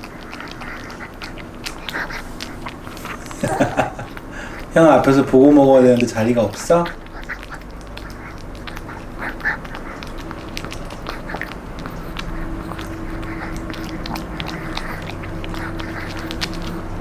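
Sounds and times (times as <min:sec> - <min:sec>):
dog chewing crunchy treat: 0:00.0 - 0:17.0.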